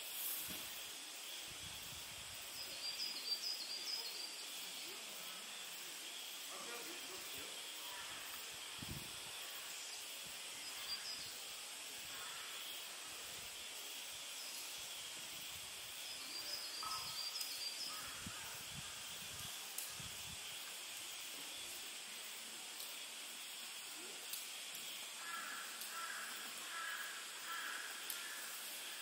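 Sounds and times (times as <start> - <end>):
insect hiss: 0.0 - 29.0
bird chirps: 16.2 - 17.8.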